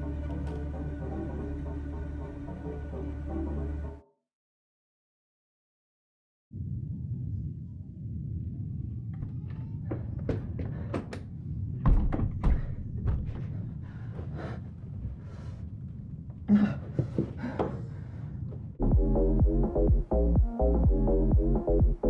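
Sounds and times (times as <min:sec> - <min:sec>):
steady low rumble: 0:06.6 - 0:17.2, 0:17.8 - 0:22.0
thuds and bangs on wooden door: 0:11.8 - 0:13.4.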